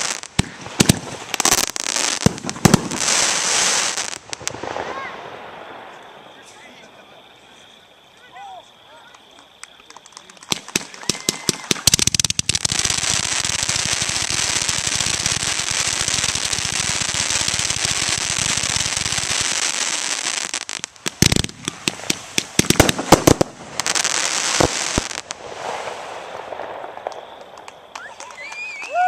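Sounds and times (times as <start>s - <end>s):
loud firework bangs: 0.0s - 6.4s, 10.4s - 28.0s
fireworks crackling and popping: 0.0s - 7.4s, 8.1s - 29.0s
fireworks fizzing: 0.0s - 7.6s, 8.2s - 29.0s.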